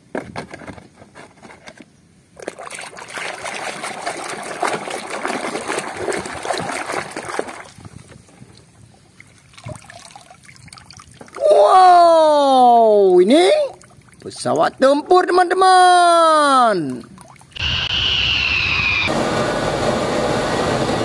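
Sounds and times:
water sloshing and splashing: 0:02.4 - 0:11.4, 0:13.7 - 0:14.4, 0:16.8 - 0:17.6
water trickling and dripping: 0:07.8 - 0:11.4, 0:13.6 - 0:14.4, 0:16.9 - 0:17.6.

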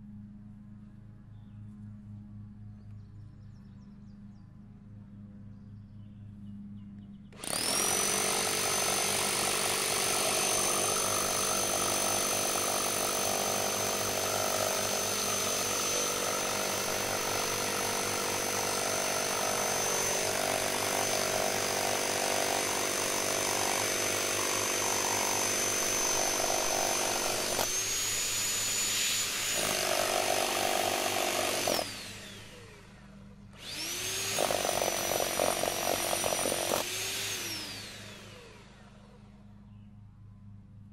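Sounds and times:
rotary hammer pounding: 0:07.4 - 0:32.6, 0:33.6 - 0:38.3.

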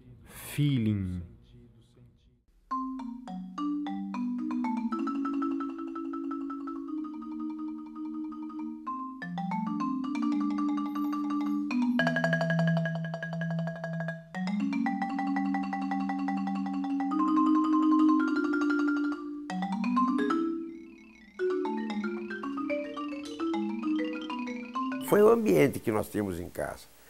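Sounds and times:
instrumental music of ringing notes: 0:02.7 - 0:25.4.

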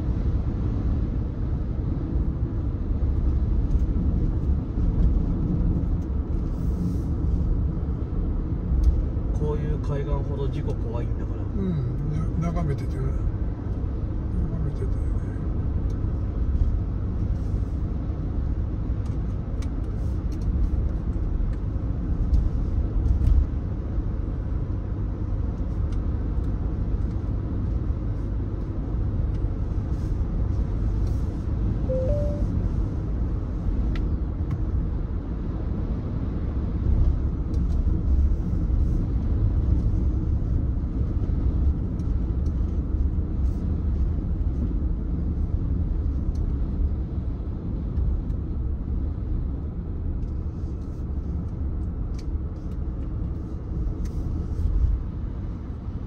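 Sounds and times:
road and tyre rumble in car: 0:00.0 - 0:56.0
two-note beep: 0:31.9 - 0:32.5.

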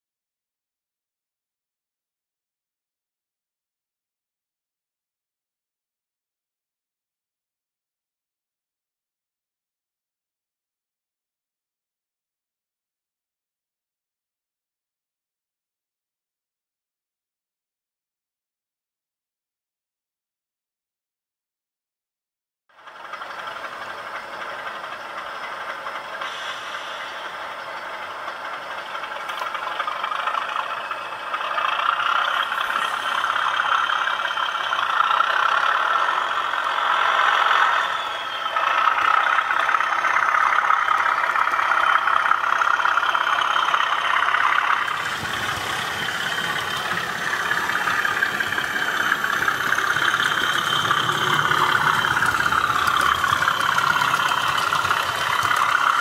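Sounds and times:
model train motor whirring: 0:22.9 - 0:56.0.

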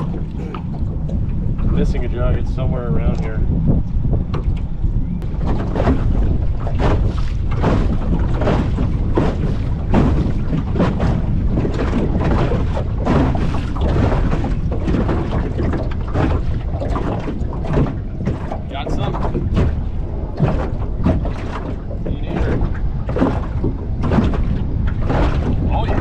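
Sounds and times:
boat motor low rumble: 0:00.0 - 0:26.0
wind buffeting microphone: 0:00.0 - 0:26.0.

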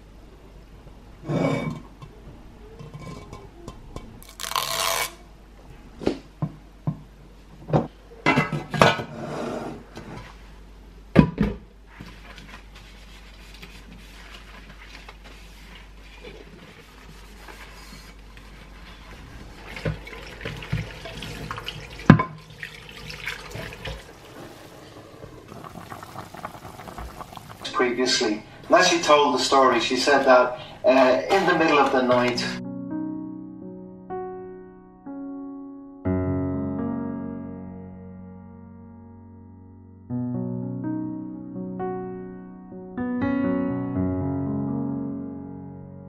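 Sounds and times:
sponge scrubbing: 0:12.8 - 0:27.7
tap water running: 0:19.3 - 0:29.2.

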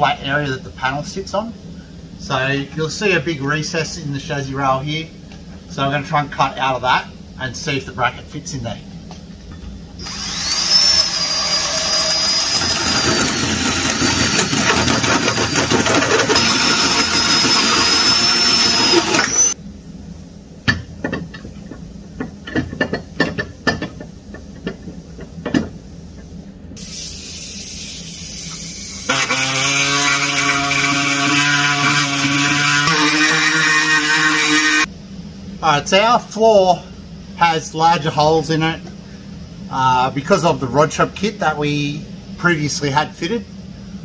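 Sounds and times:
drill cutting through steel: 0:10.0 - 0:19.6, 0:28.8 - 0:34.9
pneumatic tool buzzing: 0:10.0 - 0:19.6, 0:26.8 - 0:34.9
hiss: 0:26.1 - 0:29.2.

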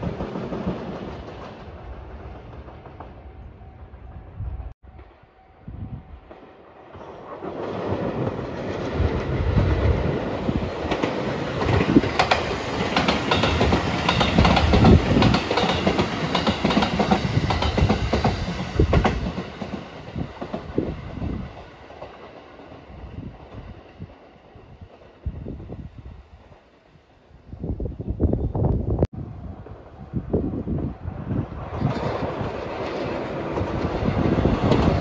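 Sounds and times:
train wheels clattering over rail joints: 0:10.8 - 0:20.8.

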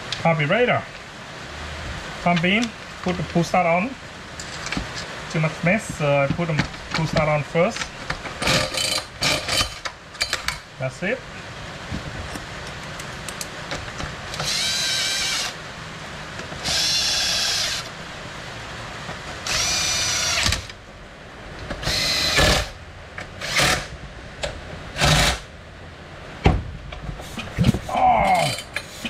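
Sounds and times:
cordless drill motor whining: 0:14.4 - 0:15.6, 0:16.6 - 0:17.9, 0:19.4 - 0:20.7, 0:21.8 - 0:22.7.

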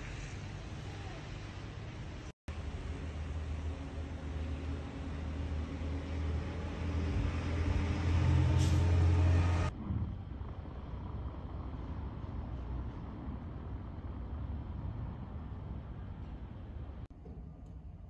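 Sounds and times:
wind rumbling on microphone: 0:09.6 - 0:17.1.

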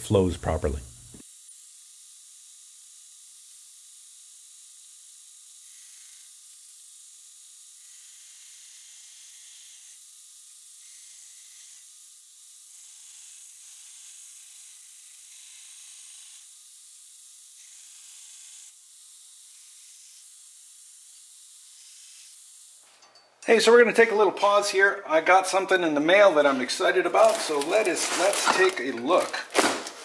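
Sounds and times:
belt grinder grinding steel: 0:26.9 - 0:30.0.

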